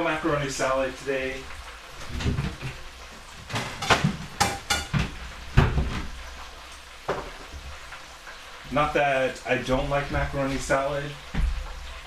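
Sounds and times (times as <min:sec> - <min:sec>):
plates knocking and clinking: 0:03.5 - 0:06.0, 0:07.0 - 0:07.5.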